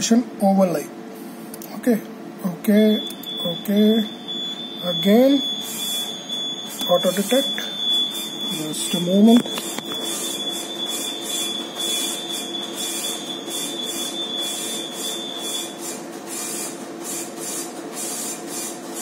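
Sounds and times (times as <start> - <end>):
machinery hum: 0.0 - 17.0
thin high-pitched tone: 2.9 - 10.2.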